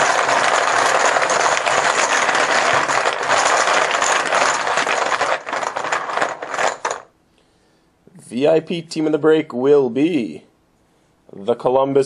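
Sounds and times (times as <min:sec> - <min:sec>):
chips clattering in a container: 0:00.0 - 0:07.1.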